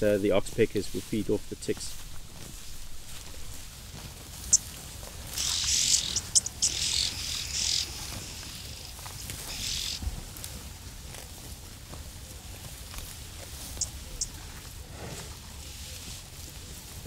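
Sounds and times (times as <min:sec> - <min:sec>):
bird hissing churring calls: 0:05.3 - 0:08.8, 0:09.4 - 0:10.0
bird high chirp: 0:05.4 - 0:08.8, 0:09.4 - 0:10.0, 0:13.7 - 0:14.4.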